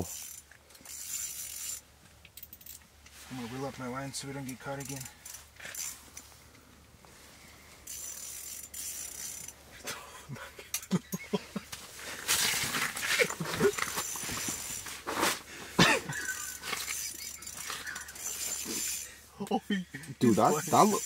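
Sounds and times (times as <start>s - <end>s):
fishing reel whirring: 0.0s - 2.8s, 4.4s - 6.3s, 7.5s - 9.8s, 12.4s - 15.0s, 16.1s - 19.2s, 20.0s - 21.0s.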